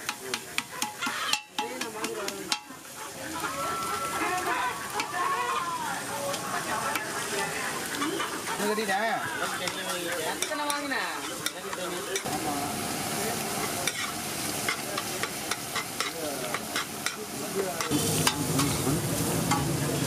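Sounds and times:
frying sizzle: 0.0 - 20.0
metal spatula scraping on iron: 0.3 - 2.8, 7.9 - 12.3, 13.6 - 18.8.

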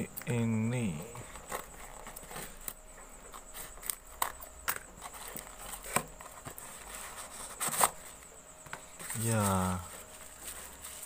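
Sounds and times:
cardboard and paper handled: 1.1 - 11.0
scissors cutting cardboard: 3.4 - 8.0.

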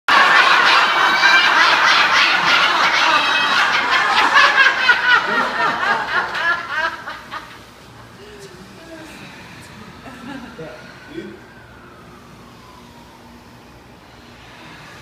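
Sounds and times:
large group laughing: 0.1 - 11.9.

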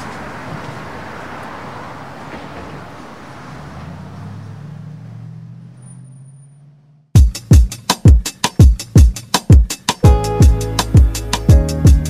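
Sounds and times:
vehicle engine hum: 0.0 - 7.2
street traffic: 0.0 - 12.0
music with booming bass drum: 7.2 - 12.0.

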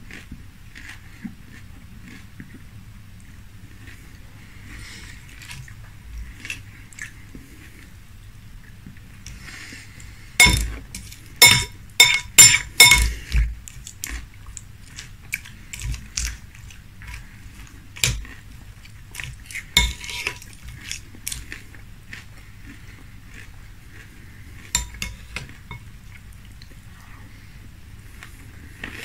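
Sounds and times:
spoon clinking on glass bowl: 10.4 - 13.2, 19.8 - 20.3, 24.8 - 25.8
spoon scraping glass bowl: 10.4 - 13.4, 19.8 - 20.5, 24.8 - 25.8.

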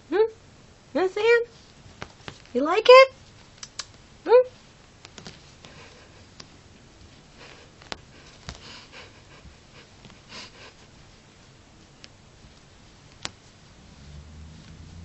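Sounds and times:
cat rustling on carpet: 1.5 - 2.6, 3.2 - 15.0
sharp clicks: 3.6 - 4.0.

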